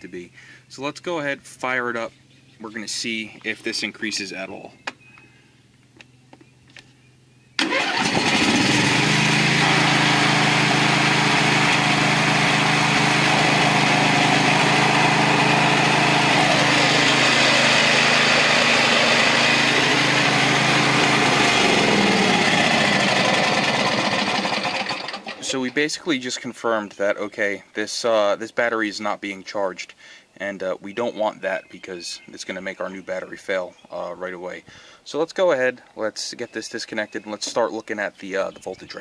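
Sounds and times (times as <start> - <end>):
mower engine starting and running: 7.6 - 25.9.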